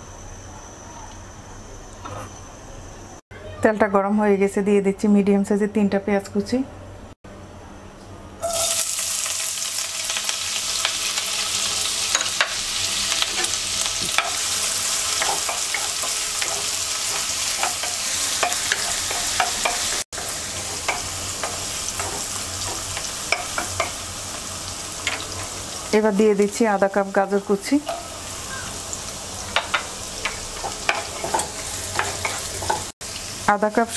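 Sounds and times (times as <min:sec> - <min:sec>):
onions sizzling in hot oil: 0:08.4 - 0:33.9
wooden spatula tapping and scraping pan: 0:29.5 - 0:32.9.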